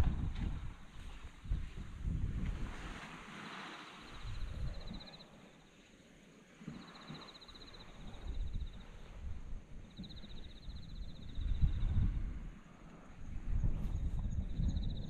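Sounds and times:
low rumble on microphone: 0.0 - 3.1, 4.1 - 5.1, 8.0 - 15.0.

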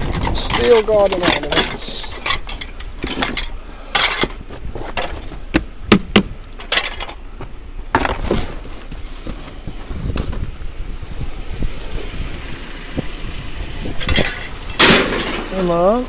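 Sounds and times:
metal rods knocking: 0.0 - 4.4, 5.0 - 7.2, 14.0 - 15.6
scrap metal clattering: 0.0 - 5.5, 6.6 - 7.2, 14.0 - 15.7.

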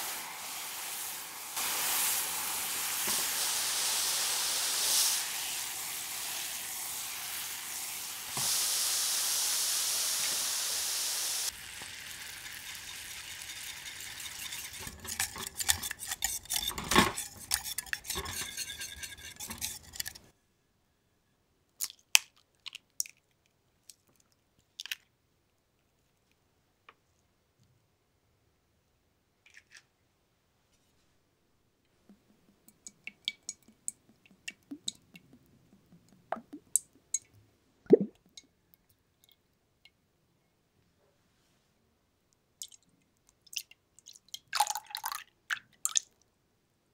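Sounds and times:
caramel sauce sizzling in saucepan: 0.0 - 20.1
whisk scraping against pan: 12.6 - 20.3.

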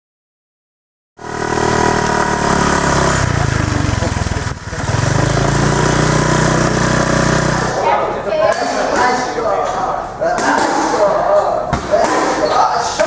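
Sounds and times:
motor engine running: 1.2 - 8.1.

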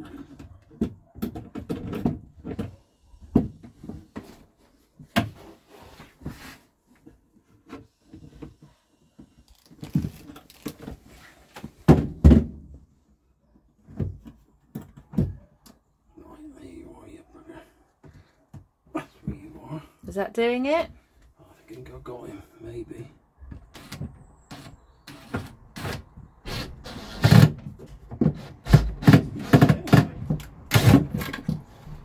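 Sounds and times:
wardrobe door knocks and clunks: 11.8 - 12.8, 26.5 - 31.7.

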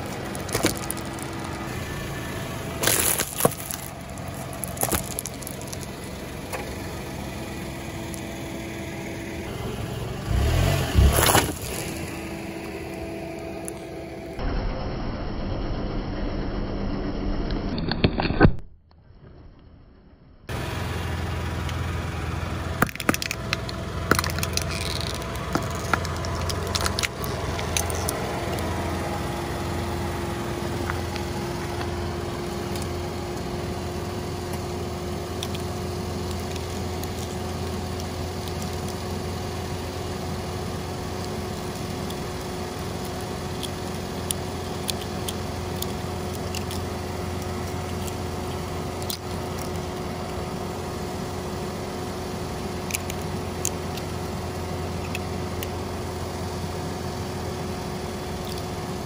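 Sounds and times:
tyre crushing plastic eggs: 0.0 - 1.7, 2.7 - 6.1, 11.0 - 12.3, 22.8 - 28.7, 41.2 - 50.4
car engine idling: 0.0 - 17.4, 20.5 - 59.0.

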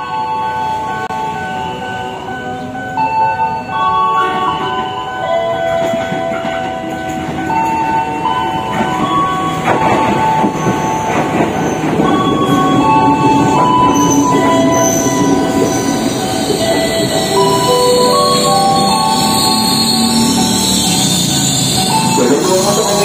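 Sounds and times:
train wheels clattering over rails: 4.3 - 23.0
tones shifting in pitch: 11.8 - 22.1.

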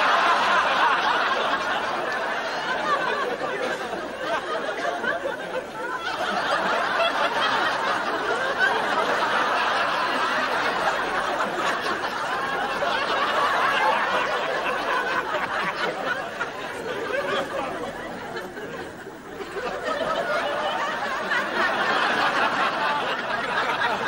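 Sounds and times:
studio audience laughing: 0.0 - 24.0.

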